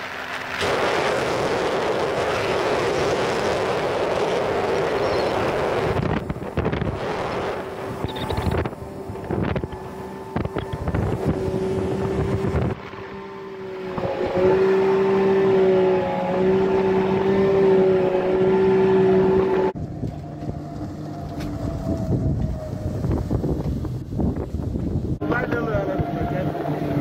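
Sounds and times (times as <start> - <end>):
water spray from wake: 0.0 - 13.0
jet boat engine droning: 0.0 - 24.0, 24.6 - 27.0
wind buffeting microphone: 0.7 - 15.6, 19.7 - 27.0.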